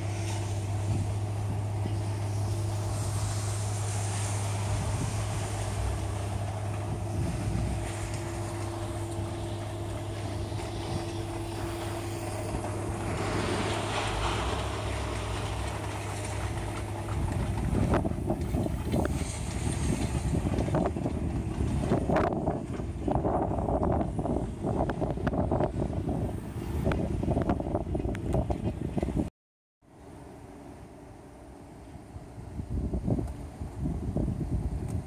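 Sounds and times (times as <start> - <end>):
steady low hum: 0.0 - 28.0
wind buffeting microphone: 0.0 - 29.3, 32.0 - 35.0.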